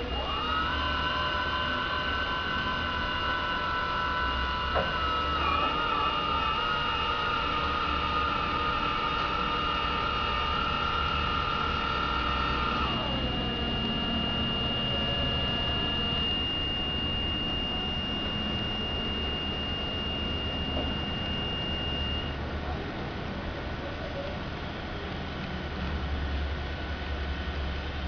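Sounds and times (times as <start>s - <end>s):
whine gliding down in pitch: 0.0s - 22.4s
thin high steady tone: 2.0s - 22.4s.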